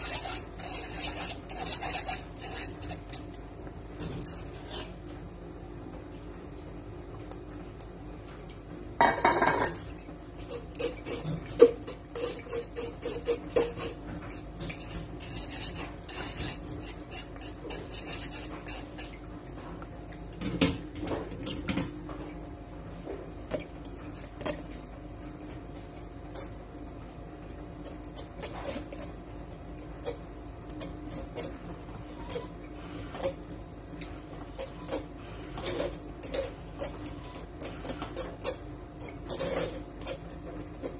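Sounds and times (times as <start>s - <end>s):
utensils scraping metal strainer: 0.0s - 3.3s, 10.4s - 19.2s, 27.8s - 40.9s
utensil clatter: 9.0s - 19.2s.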